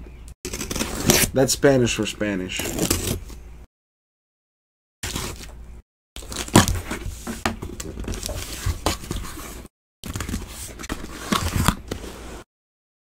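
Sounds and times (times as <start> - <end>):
cardboard tearing and crinkling: 0.5 - 1.4, 2.5 - 3.2, 5.0 - 5.5, 6.2 - 12.3.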